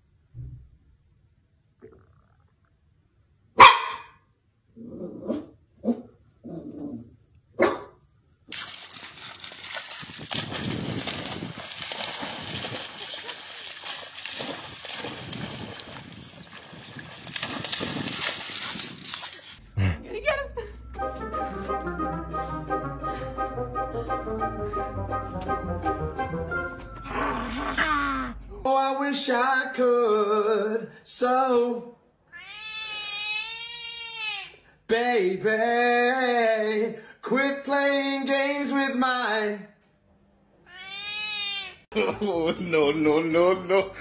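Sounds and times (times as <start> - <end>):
dog splashing through water: 8.5 - 19.6
cat meowing: 32.3 - 34.6, 40.6 - 41.8.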